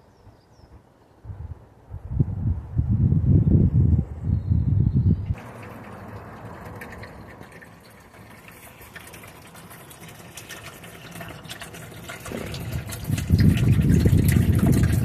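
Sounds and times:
water splashing into tank: 0:05.4 - 0:15.0.

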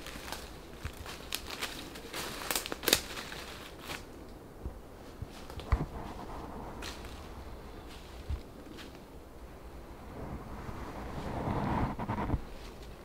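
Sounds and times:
footsteps crunching dry leaves: 0:00.0 - 0:04.1, 0:05.1 - 0:09.0
twig snapping: 0:00.1 - 0:04.1.

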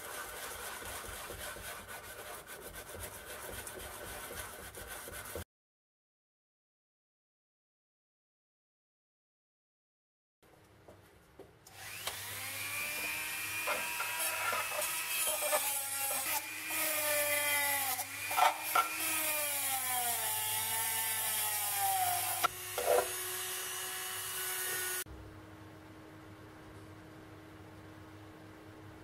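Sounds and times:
wire brush scratching metal: 0:00.0 - 0:05.3
rotary tool motor whine: 0:11.7 - 0:15.8.

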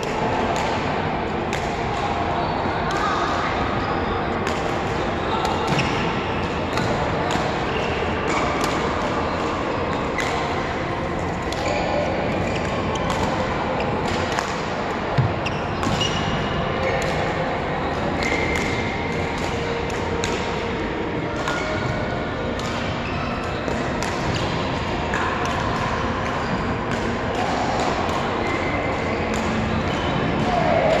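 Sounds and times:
sports hall background: 0:00.0 - 0:31.0
racket hitting shuttlecock: 0:04.4 - 0:10.4, 0:14.0 - 0:16.3, 0:18.2 - 0:31.0
shoes squeaking on court floor: 0:15.1 - 0:17.0.

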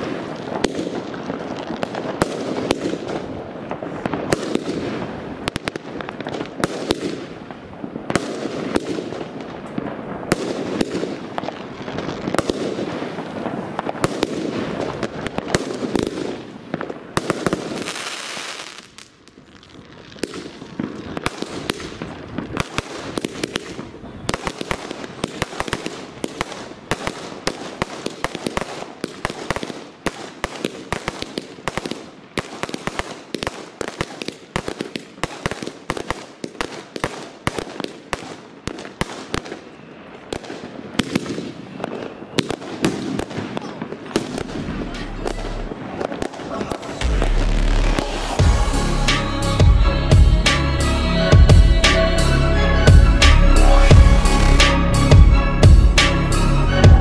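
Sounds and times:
fireworks bangs and crackling: 0:00.0 - 0:57.0.

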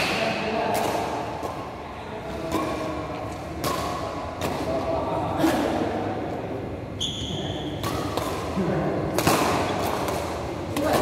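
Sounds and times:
rackets striking shuttlecock: 0:00.0 - 0:04.9, 0:07.4 - 0:11.0.

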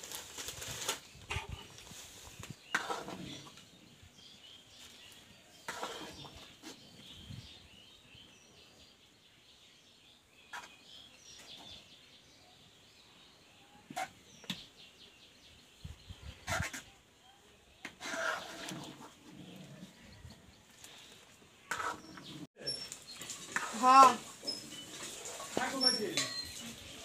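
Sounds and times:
faint birds chirping: 0:00.7 - 0:27.0
metal ladle clinking in a pan: 0:25.8 - 0:26.7.

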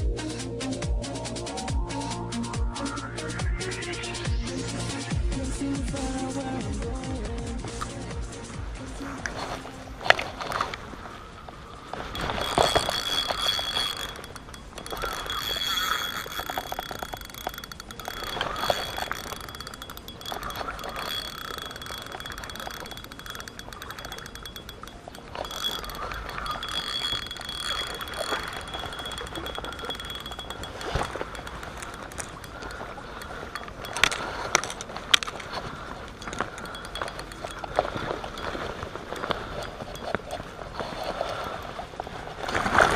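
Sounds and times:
steady high whine: 0:11.2 - 0:40.2
fishing reel being cranked: 0:11.8 - 0:42.9.

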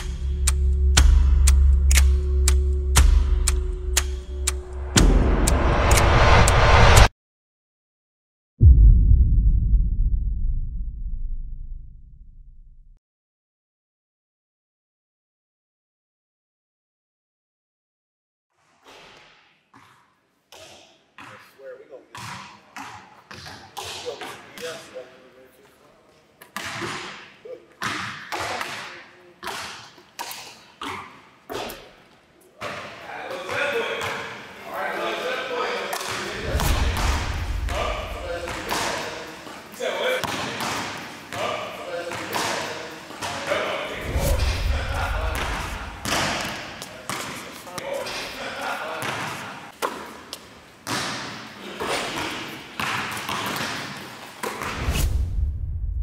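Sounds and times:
deep low rumble: 0:00.0 - 0:07.1, 0:08.6 - 0:13.0, 0:36.5 - 0:38.3, 0:44.1 - 0:46.0, 0:55.0 - 0:56.0
basketballs bouncing on wooden floor: 0:22.2 - 0:24.0, 0:52.8 - 0:54.7.

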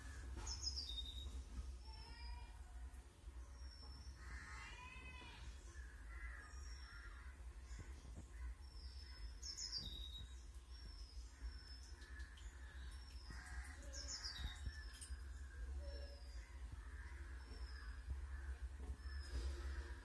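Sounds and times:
birds chirping faintly: 0:00.0 - 0:20.0
steady low rumble: 0:10.2 - 0:20.0.

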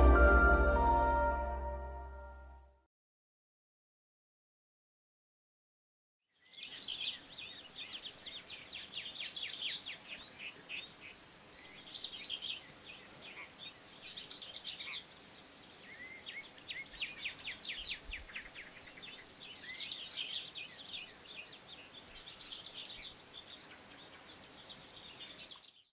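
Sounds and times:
birds trilling and chirping: 0:06.4 - 0:25.9
high-pitched insect hum: 0:06.5 - 0:25.6.

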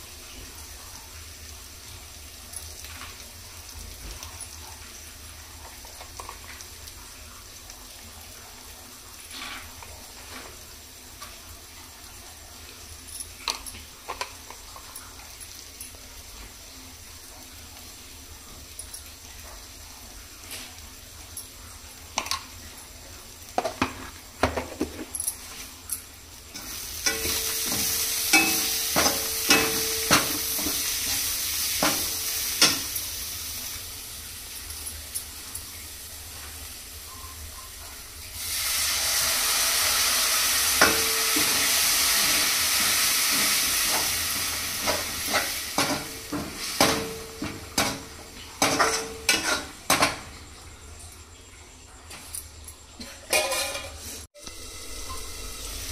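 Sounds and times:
food sizzling in hot oil: 0:00.0 - 0:50.5, 0:53.5 - 0:55.9
spatula knocking and scraping pan: 0:26.6 - 0:31.2, 0:44.8 - 0:50.3.

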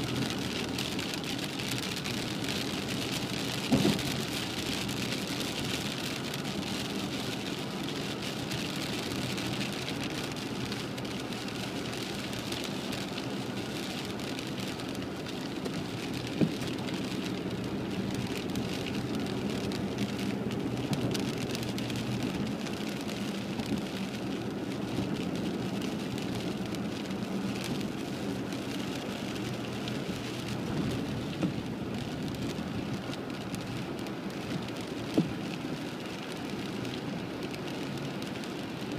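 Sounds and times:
car driving on wet road hum: 0:00.0 - 0:38.9
heavy rain on car windshield: 0:00.0 - 0:38.9.

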